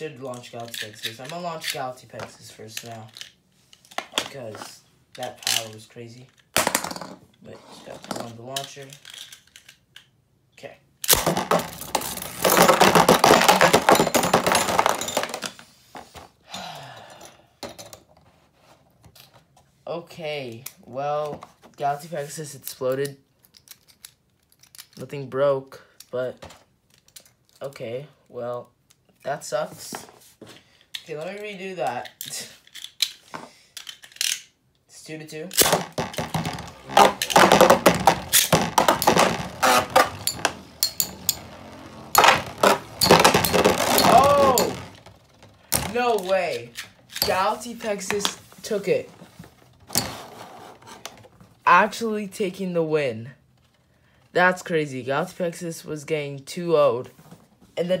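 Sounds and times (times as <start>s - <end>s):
spinning tops clattering: 35.6s - 45.9s.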